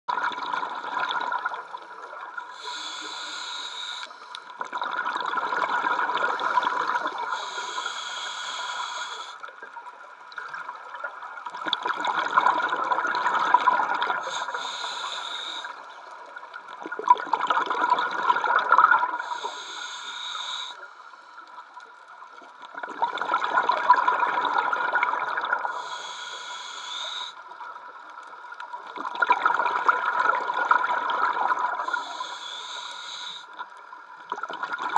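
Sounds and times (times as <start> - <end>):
regulator inhalation hiss: 2.5 - 4.5, 7.2 - 9.5, 14.2 - 15.9, 19.2 - 21.4, 25.7 - 27.4, 31.8 - 33.6
exhaled bubbles rushing: 4.6 - 7.2, 10.4 - 14.2, 16.8 - 19.2, 22.7 - 25.7, 28.9 - 31.8.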